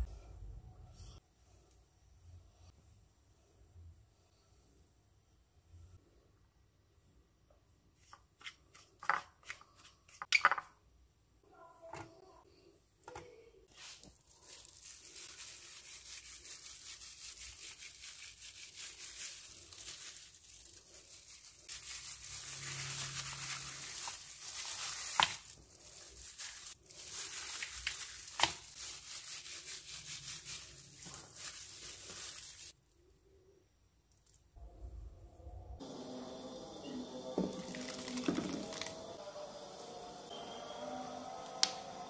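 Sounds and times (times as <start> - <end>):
gloved hand rubbing fish: 13.7 - 32.8.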